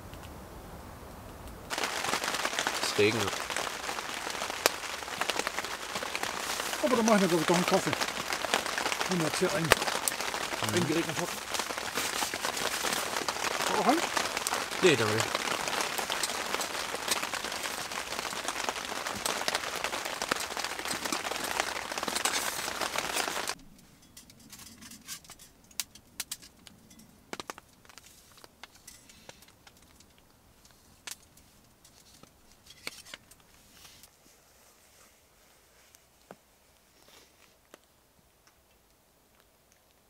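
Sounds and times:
wood fire crackling: 0.0s - 34.2s, 34.8s - 40.0s
heavy rain on a tarp: 1.6s - 23.6s, 27.3s - 34.1s.

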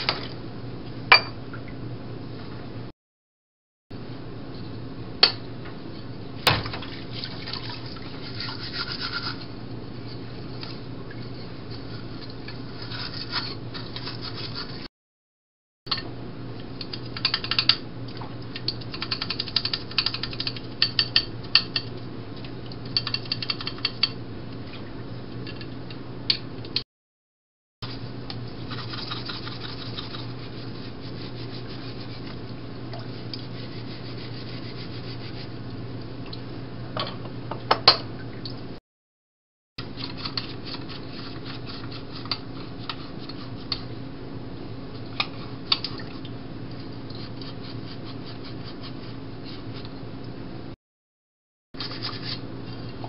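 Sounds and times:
scrubbing metal in soapy water: 6.9s - 14.9s, 27.8s - 35.6s.

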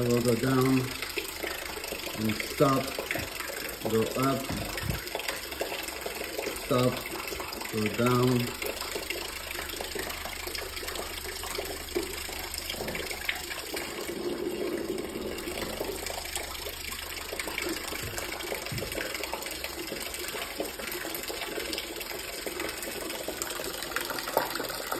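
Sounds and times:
low loudspeaker hum: 0.0s - 1.1s, 2.2s - 5.0s
water splashing into a basin: 0.0s - 24.9s.

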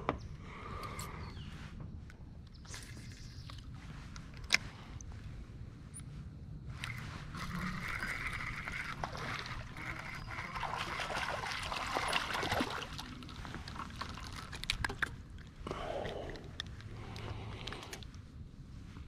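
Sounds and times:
fish splashing in water: 7.6s - 14.6s.

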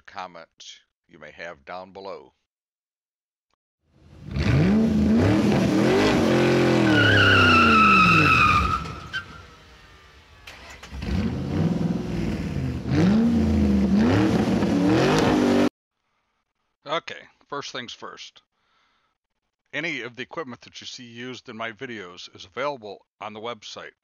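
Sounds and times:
car engine revving: 4.0s - 15.7s
tire squeal: 5.3s - 11.7s.

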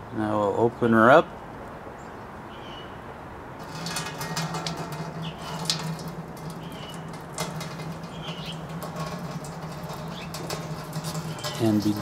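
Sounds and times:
liquid spattering into metal kettle: 3.6s - 12.0s.

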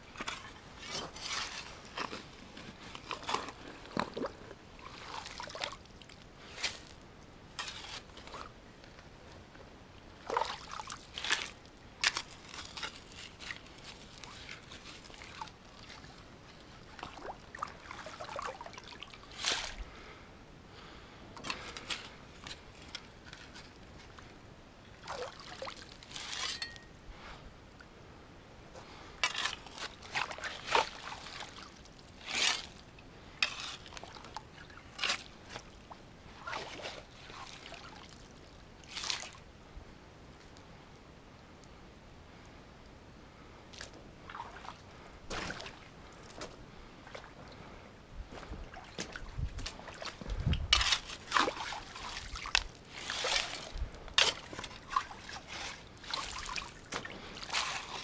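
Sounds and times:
creek water splashing: 3.0s - 6.8s, 10.2s - 16.2s, 16.8s - 19.8s, 25.0s - 26.0s, 29.2s - 32.7s, 33.4s - 39.4s, 43.8s - 46.0s, 48.6s - 58.0s.

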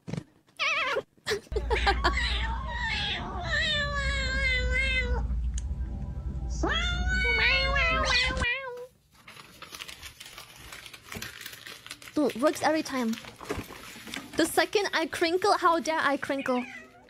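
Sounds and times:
low hum: 1.6s - 8.4s.

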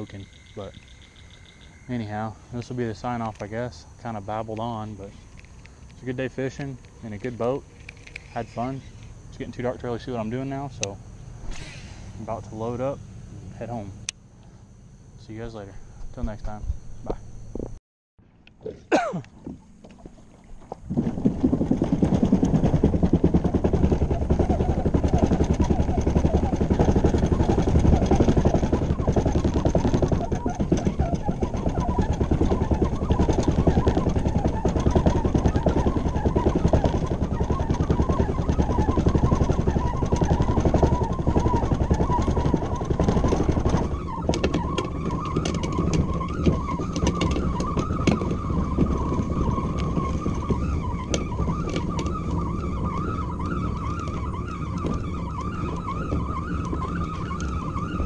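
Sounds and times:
rattling clicks: 4.5s - 9.5s, 22.3s - 58.0s
kayak scraping over boat ramp: 19.4s - 58.0s.

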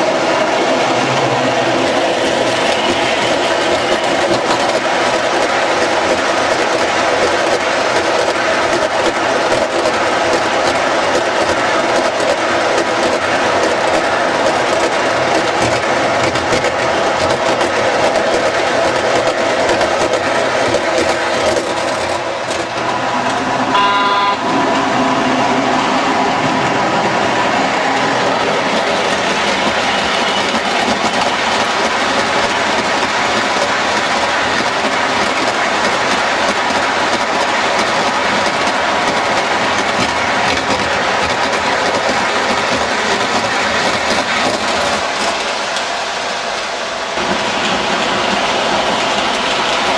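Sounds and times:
model train wheels clattering: 1.8s - 23.4s, 28.4s - 46.0s.

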